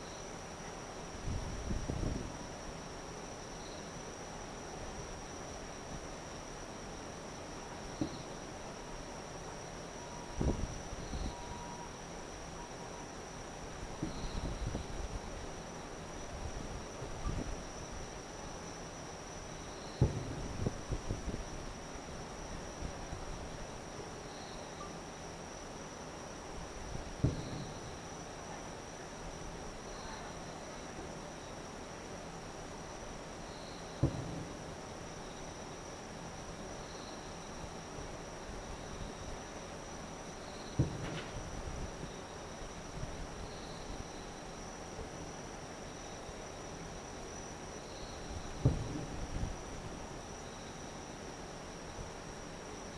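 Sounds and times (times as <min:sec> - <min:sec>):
insects trilling: 0:00.0 - 0:52.9
distant fireworks booming: 0:07.9 - 0:08.4, 0:13.8 - 0:15.3, 0:19.9 - 0:21.8, 0:27.0 - 0:28.4, 0:33.9 - 0:35.4, 0:40.6 - 0:42.2, 0:48.3 - 0:49.8.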